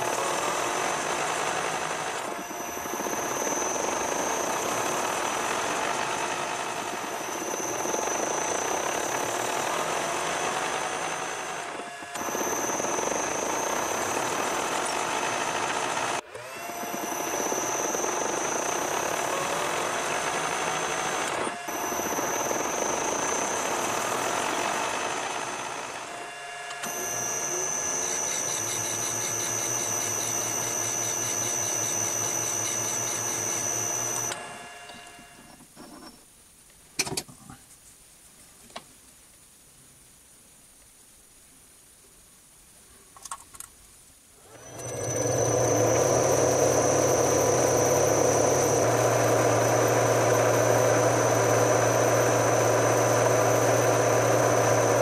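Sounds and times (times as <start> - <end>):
metal lathe cutting: 0.0 - 35.4, 44.5 - 55.0
high whine: 44.6 - 55.0.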